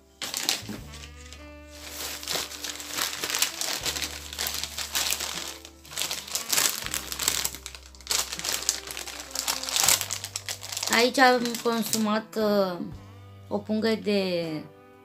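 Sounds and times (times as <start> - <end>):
crisps bag crinkling: 0.0 - 12.1.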